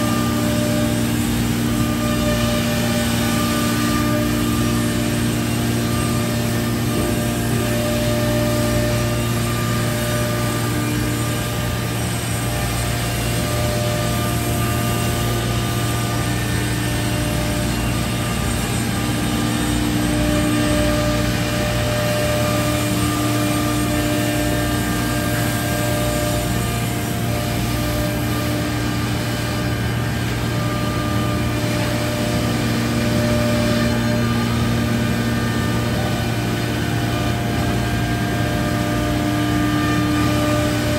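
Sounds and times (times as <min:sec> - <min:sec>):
cnc router machine drone: 0:00.0 - 0:40.9.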